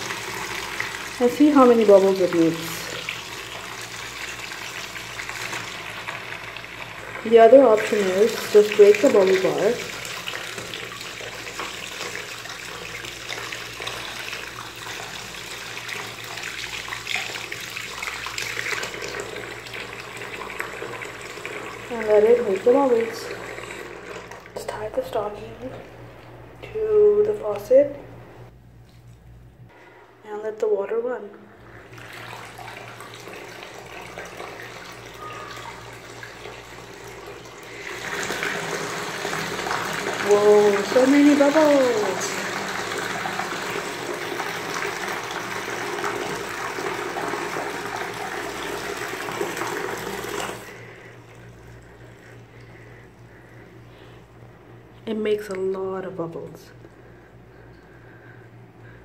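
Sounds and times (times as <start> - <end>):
faucet water splashing into tub: 0.0 - 24.9, 31.8 - 51.5.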